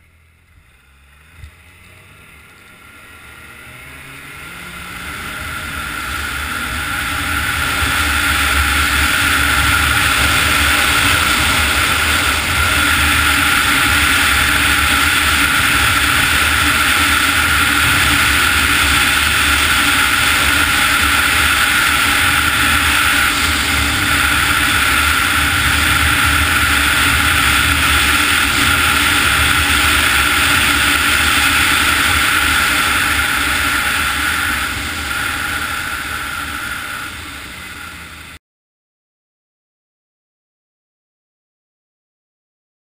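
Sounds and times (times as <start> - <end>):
snowmobile engine whine: 0.0 - 38.4
hiss of air and snow: 4.4 - 38.4.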